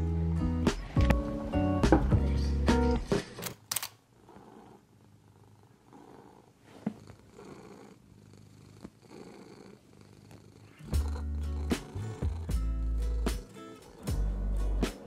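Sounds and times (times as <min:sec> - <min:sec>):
sharp clicks: 0:03.4 - 0:04.0
cat purring softly: 0:04.2 - 0:15.0.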